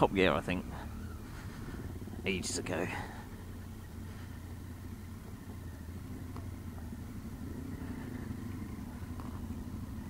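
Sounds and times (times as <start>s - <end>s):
motorcycle engine at low revs: 0.0s - 10.0s.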